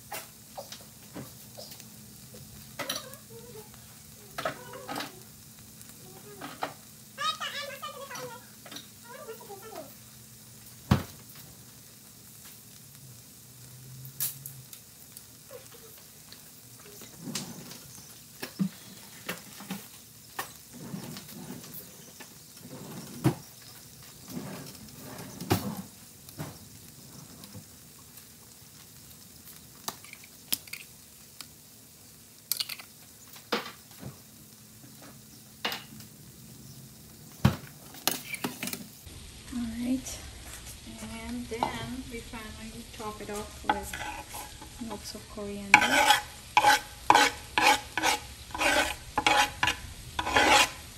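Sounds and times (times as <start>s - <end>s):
food sizzling in a skillet: 0.0s - 50.9s
metal spatula scraping a pan: 43.2s - 50.9s.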